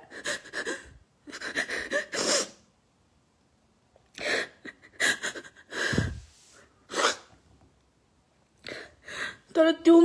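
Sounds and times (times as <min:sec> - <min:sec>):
woman sobbing: 0:00.0 - 0:02.6, 0:04.2 - 0:06.2.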